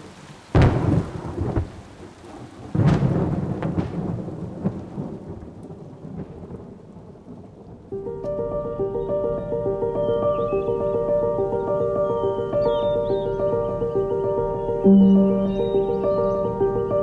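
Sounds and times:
steady rain: 0.0 - 17.0
thunderclaps rumbling: 0.0 - 17.0
sharp thunder cracks: 0.5 - 7.9.

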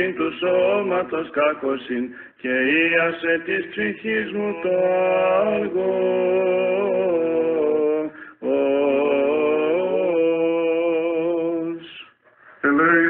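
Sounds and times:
men chanting: 2.6 - 11.8.

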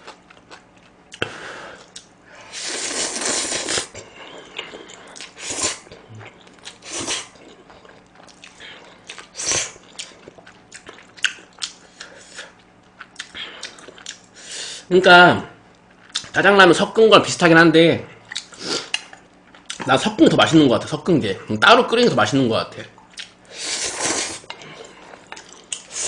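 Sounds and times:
chewing and wet mouth clicks: 1.8 - 2.1, 9.9 - 14.2, 18.3 - 19.8, 23.0 - 23.4, 24.5 - 25.9
person slurping noodles: 2.5 - 5.9, 6.8 - 7.4, 23.5 - 24.5.

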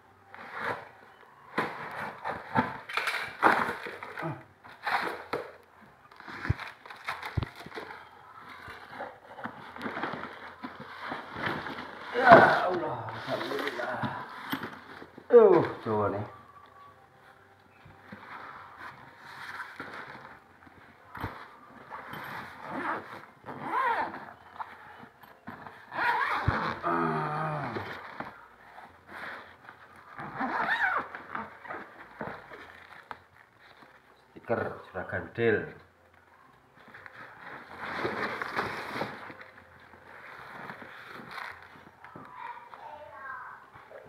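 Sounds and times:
packaging rustling: 0.4 - 16.3, 36.8 - 42.2
tape and plastic tearing: 1.5 - 9.0, 25.8 - 28.3, 30.0 - 33.3, 37.6 - 41.9.

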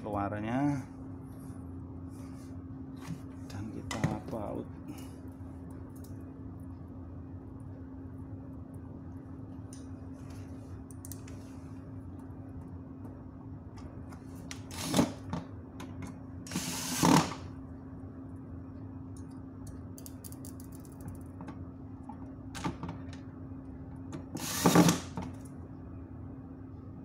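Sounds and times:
cordless drill driving screws: 14.6 - 15.2, 16.5 - 17.4, 24.4 - 25.1.

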